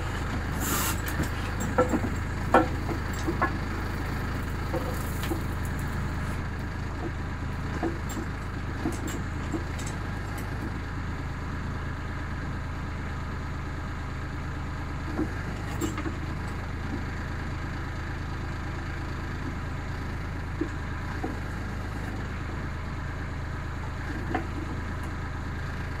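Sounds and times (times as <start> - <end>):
backhoe bucket knocking on gravel: 0.0 - 6.4
tractor diesel engine running: 0.0 - 26.0.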